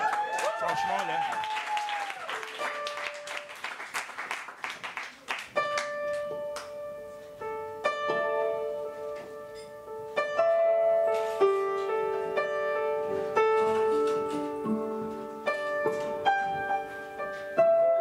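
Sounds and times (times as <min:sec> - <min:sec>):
applause: 0:00.0 - 0:06.7
upright piano slow notes: 0:05.6 - 0:18.0.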